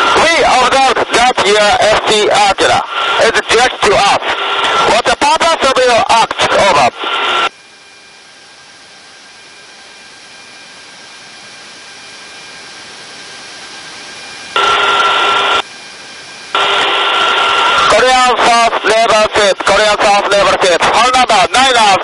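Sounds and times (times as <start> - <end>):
radio static bursts: 0.0 - 7.5, 14.6 - 15.6, 16.5 - 22.0
radio static hiss: 0.0 - 7.5, 14.5 - 15.7, 16.5 - 22.0.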